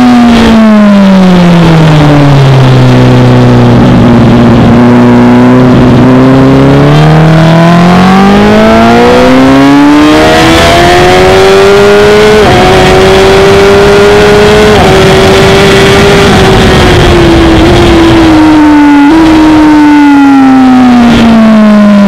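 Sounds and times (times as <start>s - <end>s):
motorcycle engine accelerating: 0.0s - 22.0s
wind rush on camera: 2.5s - 6.4s, 10.0s - 20.2s.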